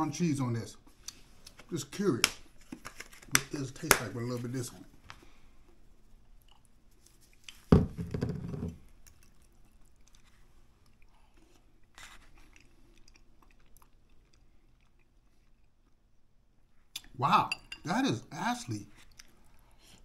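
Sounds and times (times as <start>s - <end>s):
shaker thumping on wooden table: 7.7s - 8.8s.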